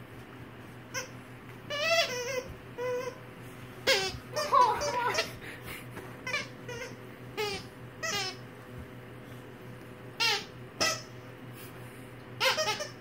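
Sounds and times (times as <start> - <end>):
child squealing and giggling: 4.3 - 5.4.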